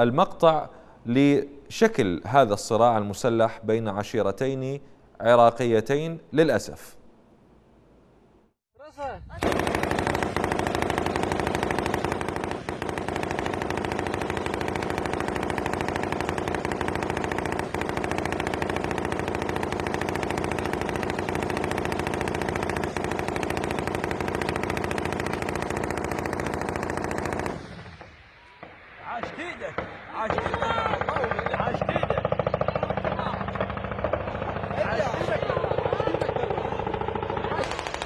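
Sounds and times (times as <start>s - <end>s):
heavy automatic gunfire: 9.4s - 38.0s.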